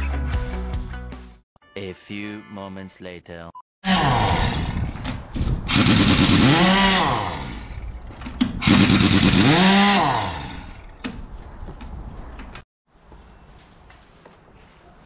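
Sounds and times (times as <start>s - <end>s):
pneumatic impact wrench: 5.7s - 10.8s.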